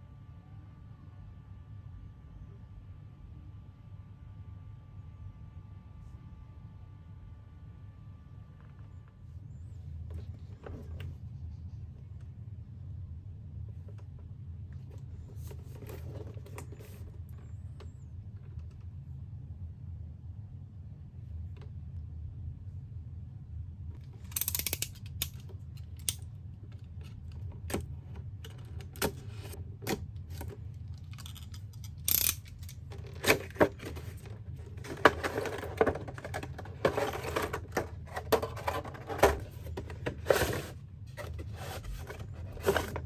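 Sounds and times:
steady low hum: 0.0s - 43.0s
rustling scraping cardboard: 32.9s - 43.0s.

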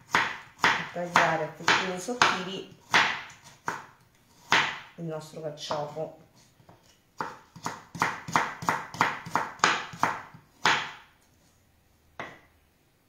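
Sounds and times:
knife chopping on wooden board: 0.1s - 4.9s, 6.8s - 11.1s, 12.2s - 12.4s.

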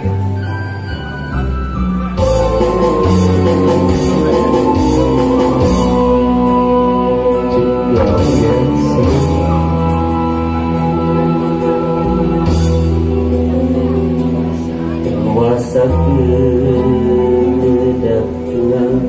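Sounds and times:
music over pa system: 0.0s - 19.0s
man singing into a microphone: 2.4s - 19.0s.

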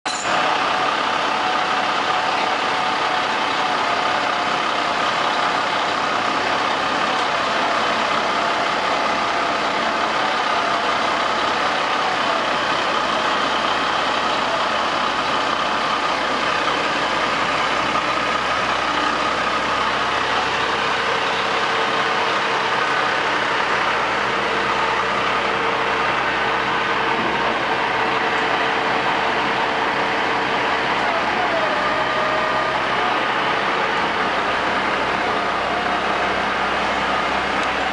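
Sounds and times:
diesel truck running: 0.0s - 37.9s.

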